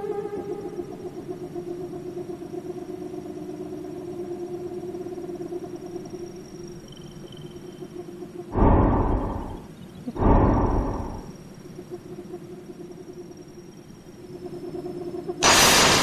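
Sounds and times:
fluttering humming drone: 0.0s - 16.0s
loud boom: 8.6s - 9.6s, 10.2s - 11.3s, 15.4s - 16.0s.

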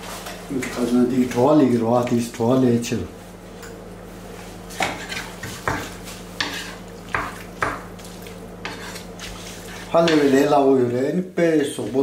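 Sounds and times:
utensil scraping frying pan: 4.7s - 10.7s.

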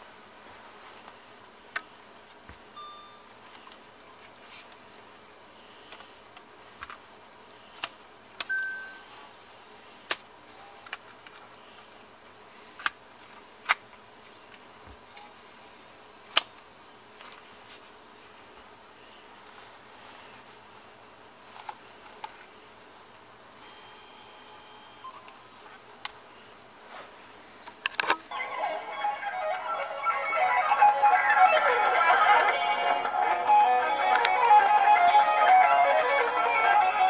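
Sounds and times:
short electronic beeps: 8.5s - 9.1s.

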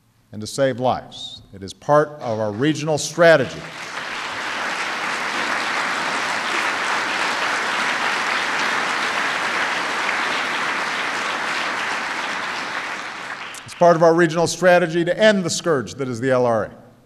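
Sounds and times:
audience applauding: 2.3s - 14.4s.

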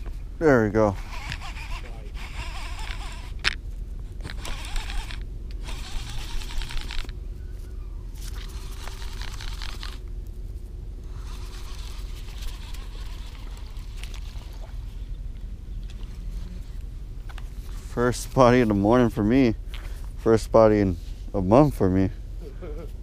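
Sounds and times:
steady low rumble: 0.0s - 23.0s
fishing reel winding: 0.9s - 3.6s, 4.2s - 7.1s, 8.4s - 10.0s, 11.1s - 14.4s.

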